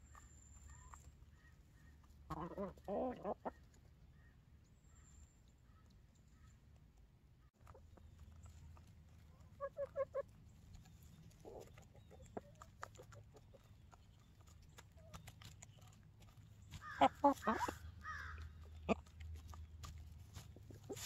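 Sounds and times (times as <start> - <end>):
hens clucking: 0.0 - 4.1, 7.6 - 21.0
scratching and pecking in hay: 7.6 - 21.0.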